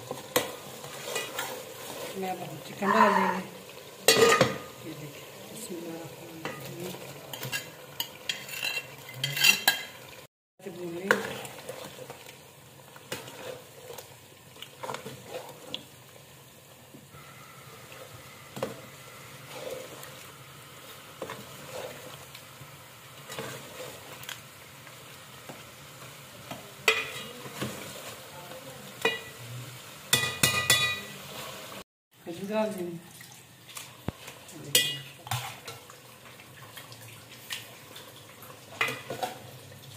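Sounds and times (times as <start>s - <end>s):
low sizzle: 0.0s - 39.9s
ladle scraping a metal pot: 0.1s - 2.2s, 7.3s - 9.9s, 17.9s - 20.2s.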